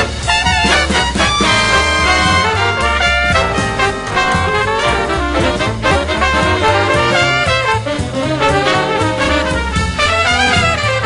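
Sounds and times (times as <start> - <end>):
swing music with brass: 0.0 - 11.0.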